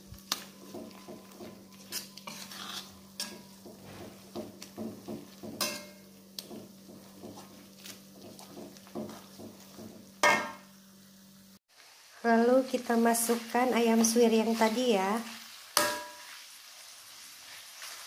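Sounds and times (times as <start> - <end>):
spice paste frying in oil: 0.0 - 18.0
metal spatula scraping a wok: 0.6 - 4.4, 5.6 - 6.0, 13.3 - 18.0.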